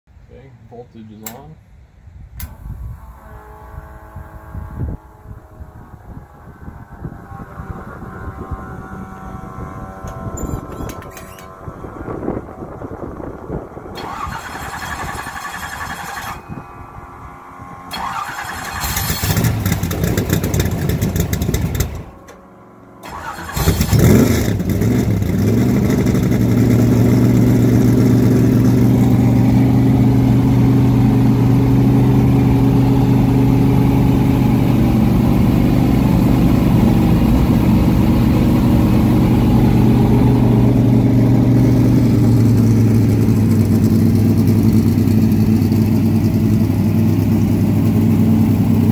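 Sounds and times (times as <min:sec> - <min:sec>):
starter motor cranking: 0:17.9 - 0:22.1, 0:23.0 - 0:24.2
car engine revving and idling: 0:17.9 - 0:48.9.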